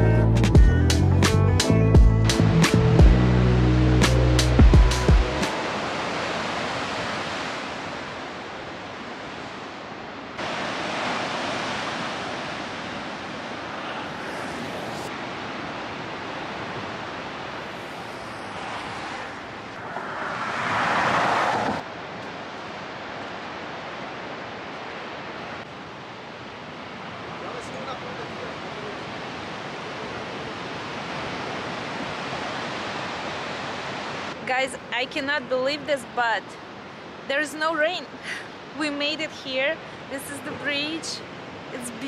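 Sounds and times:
ocean surf on rocks: 0:05.1 - 0:42.0.

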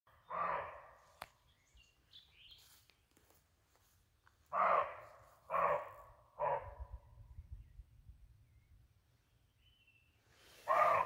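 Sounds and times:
deer barking: 0:00.2 - 0:01.0, 0:04.5 - 0:06.7, 0:10.7 - 0:11.0
faint bird chirps: 0:06.9 - 0:11.0.

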